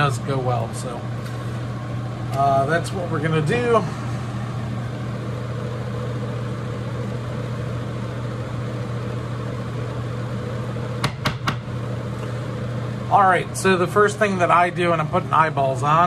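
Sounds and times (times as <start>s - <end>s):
exhaust fan humming: 0.0s - 16.0s.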